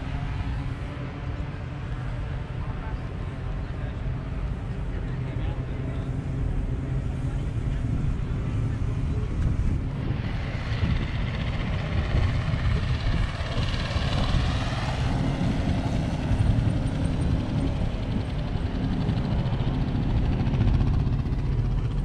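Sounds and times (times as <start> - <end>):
motorcycle engines running: 0.0 - 22.0
wind buffeting microphone: 5.4 - 22.0.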